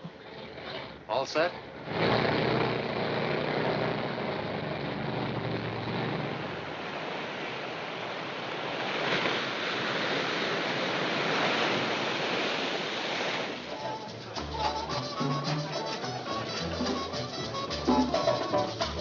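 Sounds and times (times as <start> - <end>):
low bus engine rumble: 0.0 - 7.2
ocean surf breaking: 0.0 - 19.0.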